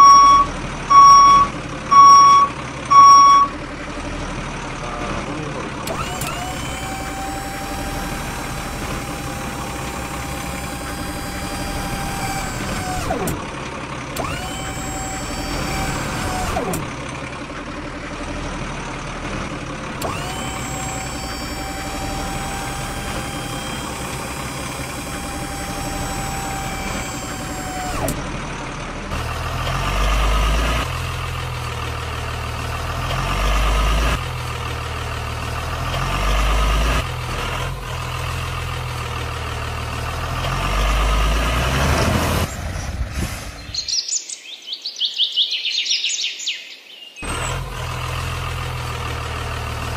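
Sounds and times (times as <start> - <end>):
deep engine rumble: 0.0 - 44.0
rising and falling whine: 19.9 - 28.4.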